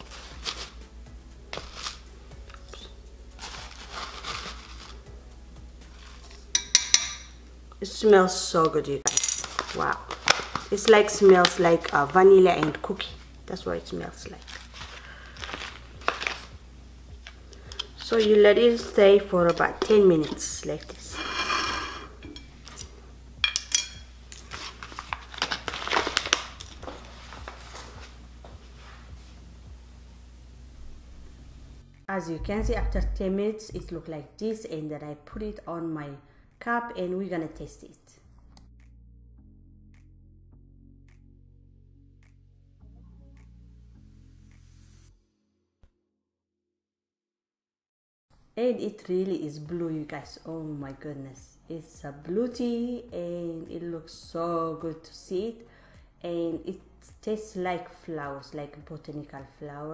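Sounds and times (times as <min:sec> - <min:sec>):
plastic pouch crinkling: 0:02.6 - 0:05.0, 0:09.4 - 0:13.2, 0:14.3 - 0:16.6, 0:17.2 - 0:19.0, 0:24.4 - 0:28.0
scoop scraping through dry tea: 0:03.4 - 0:05.0, 0:14.4 - 0:16.5, 0:17.2 - 0:22.9.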